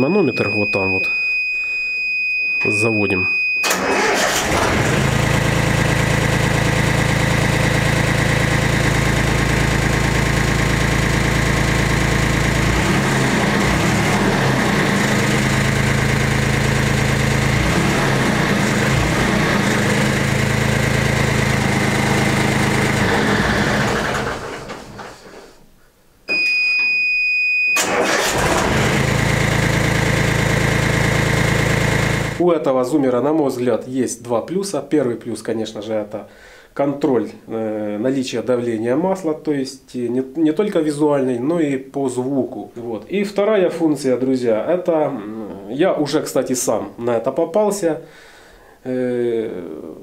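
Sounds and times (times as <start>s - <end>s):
warning buzzer beep: 0.0s - 3.8s
diesel tractor engine idling: 3.7s - 25.0s
engine running down: 3.7s - 25.1s, 27.8s - 32.4s.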